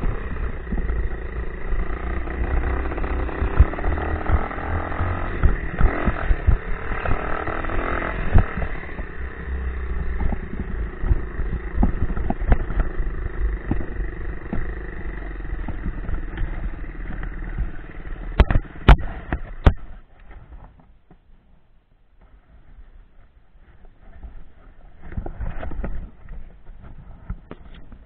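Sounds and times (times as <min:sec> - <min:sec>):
dirt bike engine running: 0:00.0 - 0:20.7
sharp knocks and rattles: 0:00.0 - 0:21.2.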